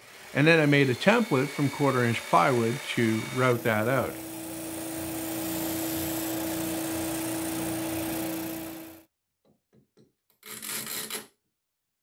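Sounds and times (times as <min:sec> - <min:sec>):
spindle sander humming: 0:00.0 - 0:09.0.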